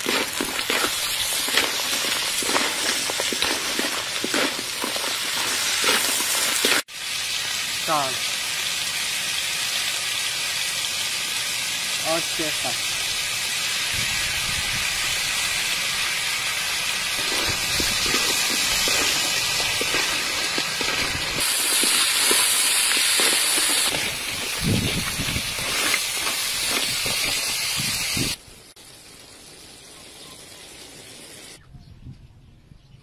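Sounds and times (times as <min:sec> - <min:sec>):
spatula scraping shells: 0:00.0 - 0:06.8, 0:17.2 - 0:24.6, 0:25.5 - 0:27.5
crabs sizzling in oil: 0:00.0 - 0:31.6.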